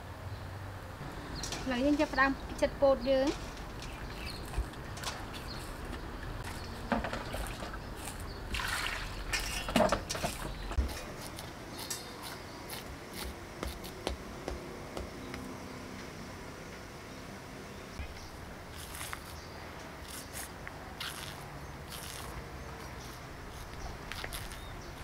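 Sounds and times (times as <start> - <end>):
kernels dropping onto steel tray: 3.2 - 5.3
metal scraper scraping corn cob: 9.3 - 14.0.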